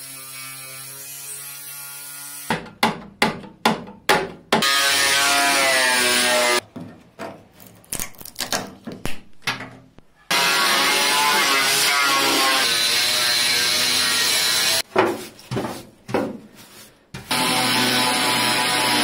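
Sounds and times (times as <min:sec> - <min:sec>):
sharp grinding bursts: 0:10.3 - 0:14.8.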